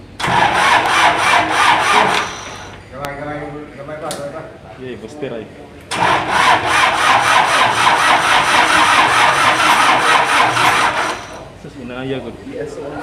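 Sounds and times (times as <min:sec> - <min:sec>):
starter motor cranking engine: 0:00.2 - 0:02.8, 0:05.9 - 0:11.5.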